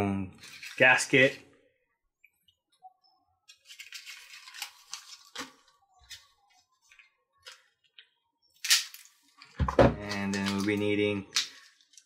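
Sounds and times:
plastic parts rustling and clicking: 0.4 - 1.4, 3.5 - 12.0.

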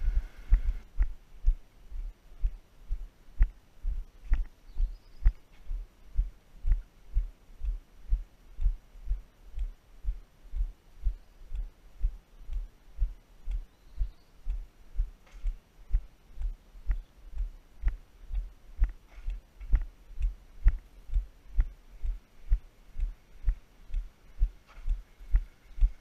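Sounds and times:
walking footfalls: 15.0 - 26.0.

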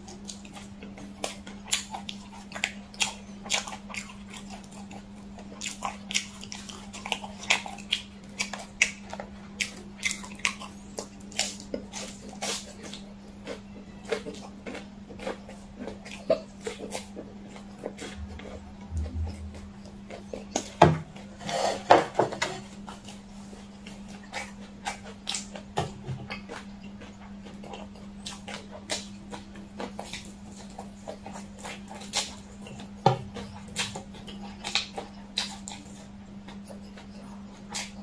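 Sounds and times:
wet chewing smacks: 0.0 - 21.3, 22.8 - 38.0.

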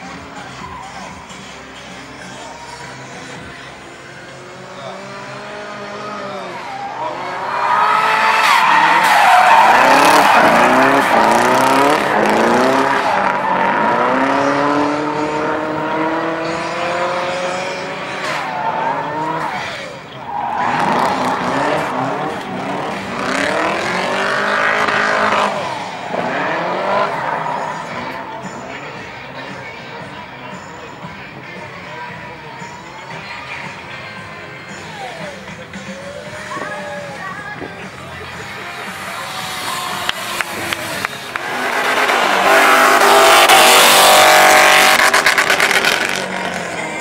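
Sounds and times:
car engine revving: 3.1 - 29.2, 35.7 - 47.0
tyres squealing: 5.8 - 14.7, 16.5 - 28.3.

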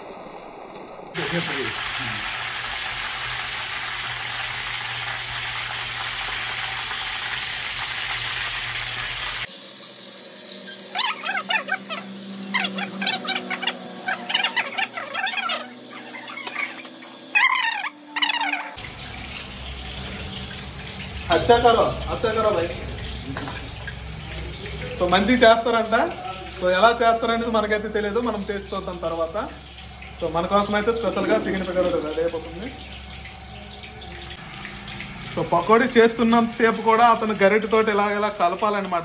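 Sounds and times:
batter sizzling in hot oil: 1.1 - 39.0
men talking: 1.2 - 2.3, 21.3 - 23.6, 30.2 - 32.8.

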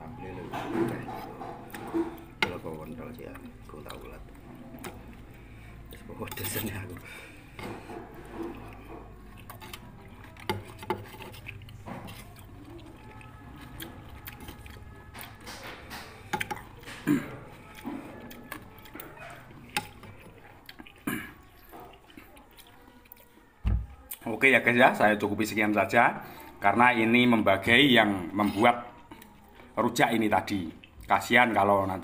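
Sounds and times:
metal spoons scraping a dish: 0.4 - 22.8.

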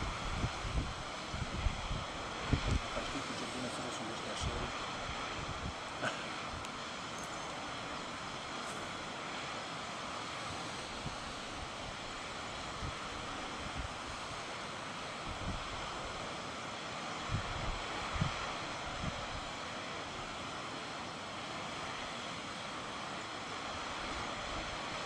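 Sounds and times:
wind rushing over microphone: 0.0 - 3.4, 4.3 - 5.9, 15.2 - 16.1, 17.3 - 19.5.

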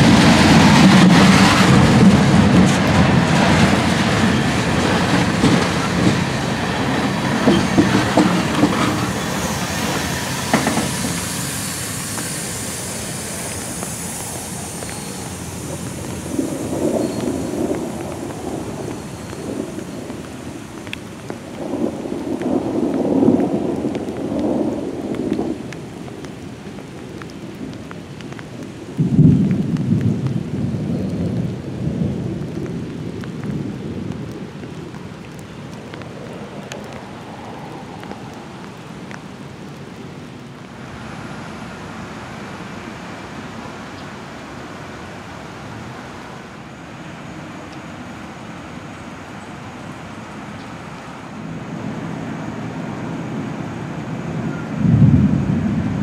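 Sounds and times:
thunder rumbling: 0.0 - 39.7, 51.5 - 56.0
steady hiss: 5.2 - 29.0.

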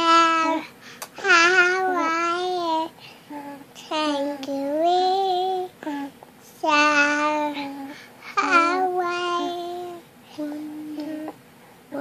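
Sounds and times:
toddler singing babbling sounds: 0.0 - 11.4.

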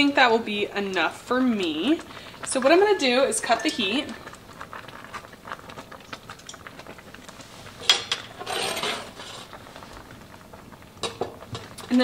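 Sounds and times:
cookware clatter: 7.8 - 9.5.

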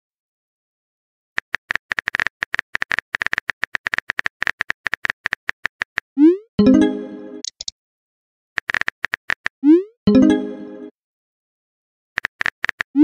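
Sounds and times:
phone keyboard typing clicks: 7.4 - 7.7.

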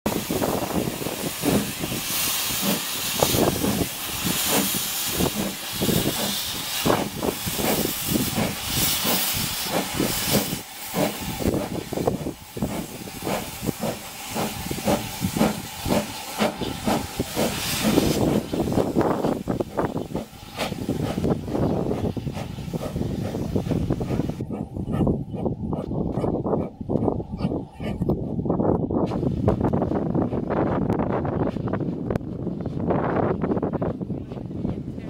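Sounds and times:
steam hissing: 0.1 - 25.0
locomotive exhaust chuffs: 0.1 - 32.9.

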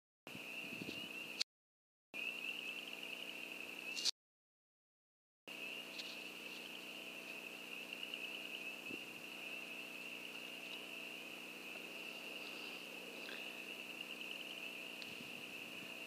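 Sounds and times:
night insects trilling: 2.2 - 4.1, 5.5 - 16.0
faint low hum: 5.5 - 16.0.

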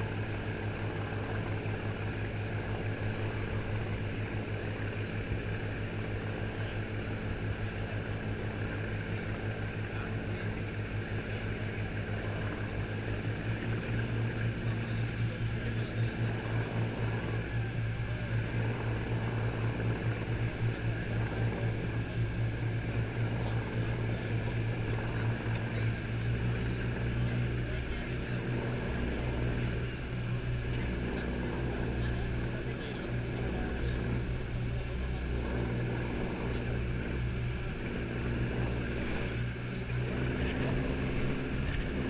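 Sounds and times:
speedboat engine drone: 0.0 - 42.0.

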